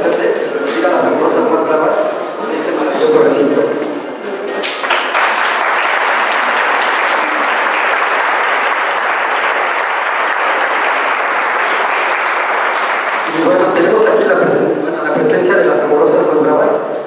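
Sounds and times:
audience applauding: 4.6s - 13.8s.

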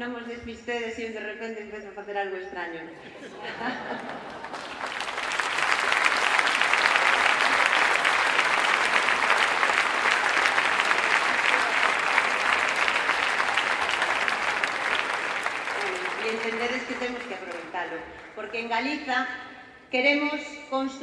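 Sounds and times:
large audience clapping: 3.8s - 18.9s.

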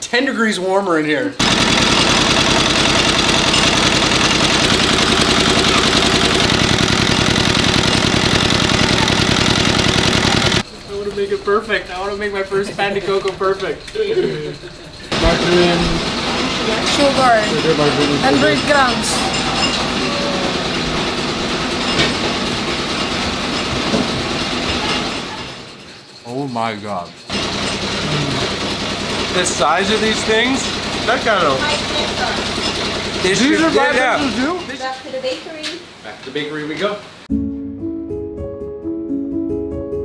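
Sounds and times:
diesel engine chugging: 1.4s - 25.8s, 27.2s - 34.8s
clattering mechanical rumble: 1.4s - 26.1s, 27.1s - 34.8s.

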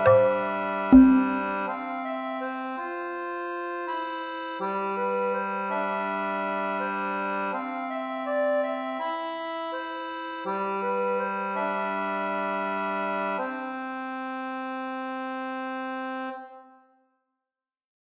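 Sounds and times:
slow held music chords: 0.0s - 1.7s.

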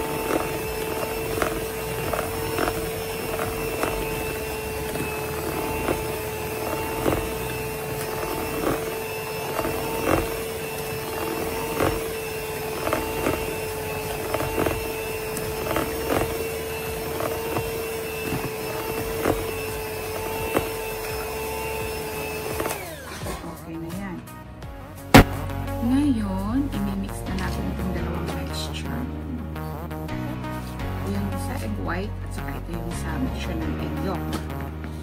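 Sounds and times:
beaters knocking on plastic bowl: 0.0s - 21.4s, 25.2s - 25.4s
electric hand mixer whining: 0.0s - 23.4s, 24.9s - 25.4s.

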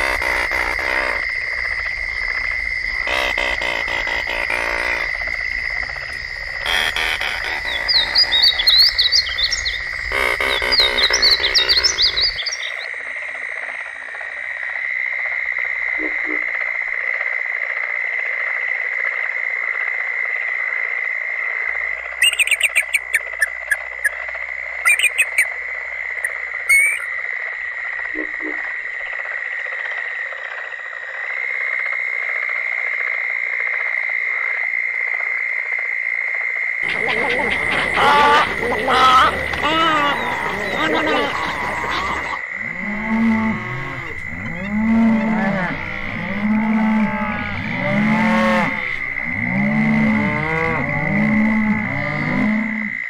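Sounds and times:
chorus of calling frogs: 0.0s - 53.0s
eagle chattering calls: 3.0s - 5.1s, 6.6s - 12.6s, 22.2s - 24.2s, 24.8s - 25.5s, 26.2s - 27.1s, 36.8s - 42.4s
bird warbling song: 6.7s - 12.8s, 22.2s - 24.2s, 24.8s - 25.5s, 26.2s - 27.1s, 36.8s - 42.4s.

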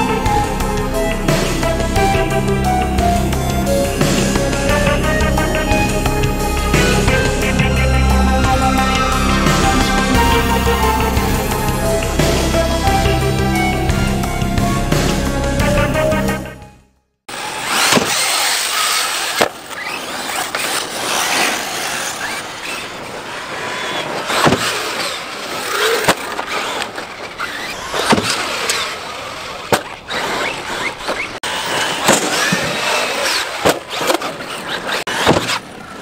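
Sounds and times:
electric motor whine: 0.0s - 16.4s, 17.3s - 36.0s
tyres on dirt: 17.3s - 36.0s.

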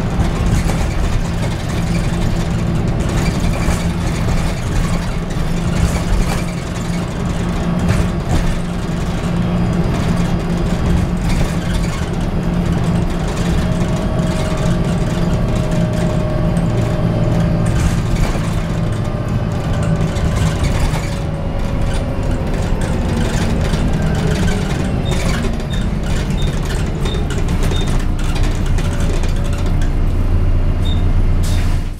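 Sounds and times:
falling drivetrain whine: 0.0s - 31.0s
bus diesel engine running: 0.0s - 31.9s.

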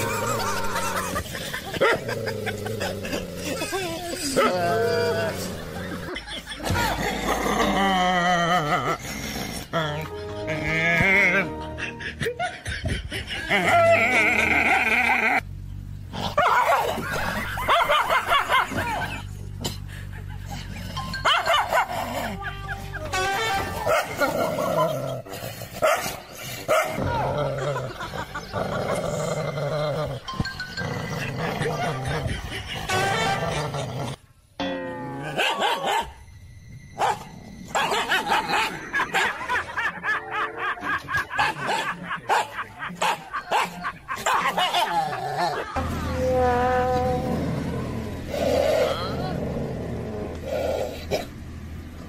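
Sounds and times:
dogs barking: 0.0s - 3.2s, 16.2s - 19.2s, 21.0s - 29.2s, 35.3s - 36.2s, 37.0s - 45.8s
dogs barking and snarling: 0.0s - 34.3s, 35.2s - 36.2s, 37.0s - 45.9s, 47.0s - 52.0s
background music: 7.5s - 14.1s, 20.8s - 25.8s, 28.6s - 44.1s.

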